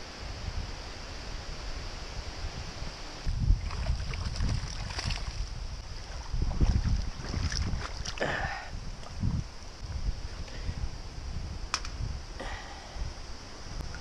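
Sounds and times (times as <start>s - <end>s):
wind buffeting microphone: 0.0s - 14.0s
water splashes: 3.5s - 9.2s.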